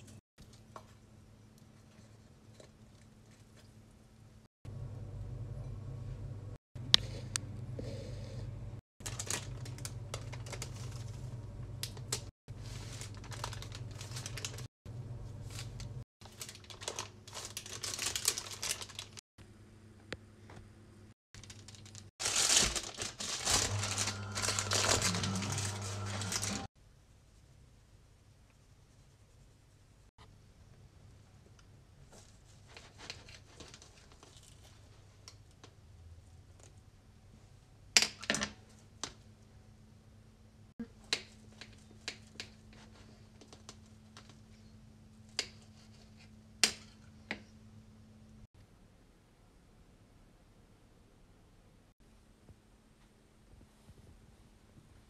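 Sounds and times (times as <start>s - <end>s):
steady low hum: 1.2s - 16.0s
baking paper crinkling: 9.0s - 19.2s, 21.4s - 26.7s, 32.1s - 35.6s.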